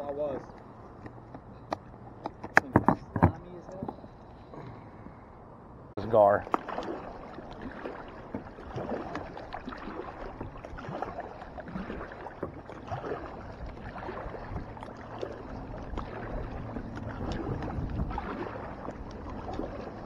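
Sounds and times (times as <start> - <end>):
clicks and knocks from boat: 0.5 - 4.1, 6.4 - 20.0
water lapping against kayak: 6.0 - 20.0.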